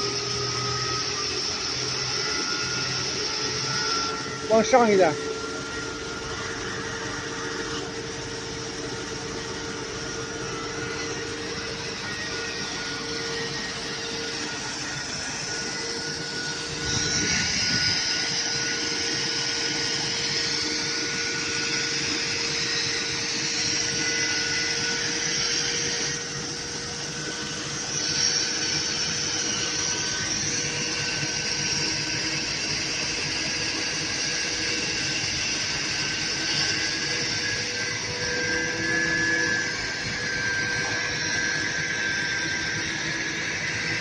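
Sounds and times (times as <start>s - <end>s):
mechanical drone: 0.0s - 44.0s.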